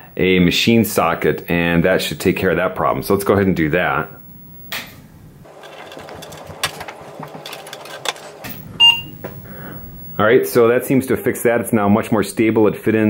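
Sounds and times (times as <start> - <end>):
short high electronic beep: 8.8 - 9.2.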